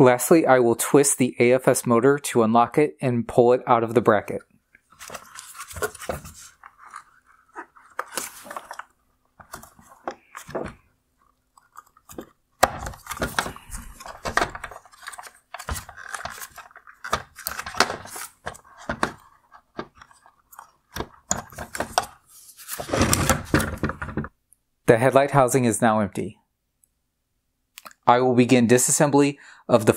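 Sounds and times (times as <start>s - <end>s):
hard plastic clicking and crunching: 7.8s - 22.2s.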